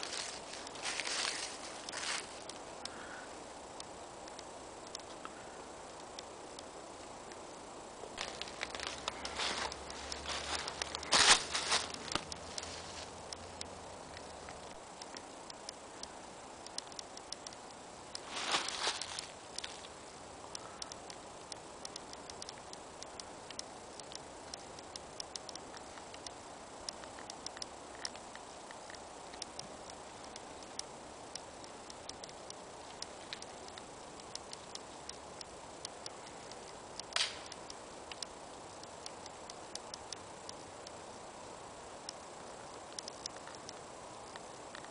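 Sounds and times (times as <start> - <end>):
footsteps on gravel and leaves: 0.0 - 2.5, 8.2 - 13.1, 18.2 - 19.9
steady low hiss: 0.0 - 44.9.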